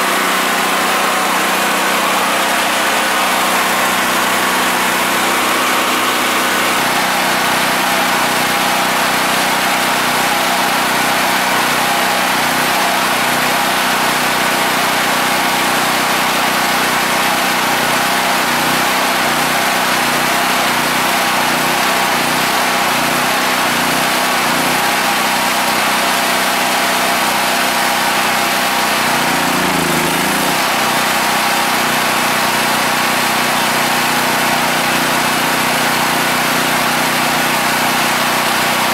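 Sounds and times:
generator engine running: 0.0 - 38.9.

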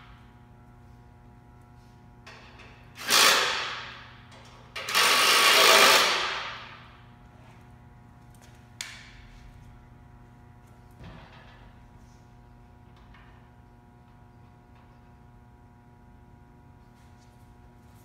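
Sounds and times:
cordless drill driving fasteners: 4.8 - 6.3.

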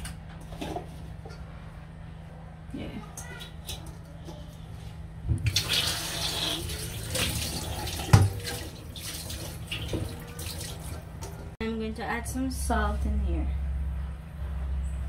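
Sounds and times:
water running into sink: 5.4 - 11.4.

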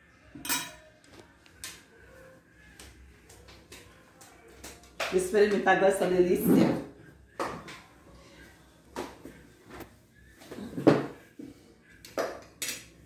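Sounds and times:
plates and cutlery clinking: 0.4 - 1.0, 12.1 - 13.0.

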